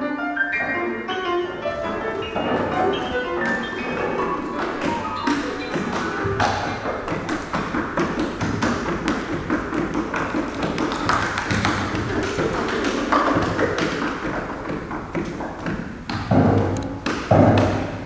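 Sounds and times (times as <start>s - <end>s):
taps and knocks on piano case: 1.6s - 18.0s.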